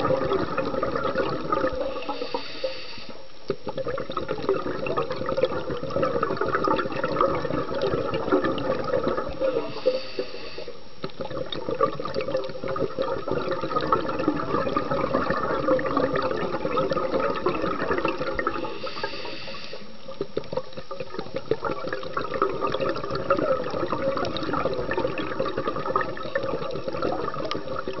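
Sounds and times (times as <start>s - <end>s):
underwater rush and bubbling: 0.0s - 28.0s
small crackling clicks: 3.3s - 4.6s, 11.0s - 12.9s, 19.0s - 22.5s.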